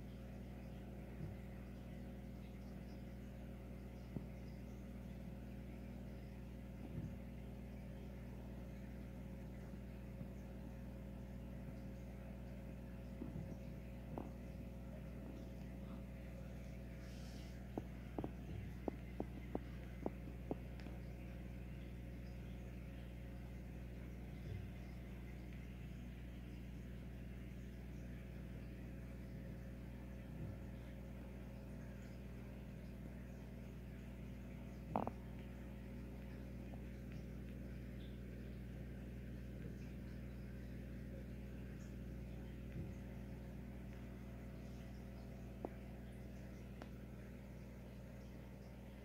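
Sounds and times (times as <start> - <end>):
aquarium equipment humming: 0.0 - 49.0
faint ticks: 17.6 - 49.0.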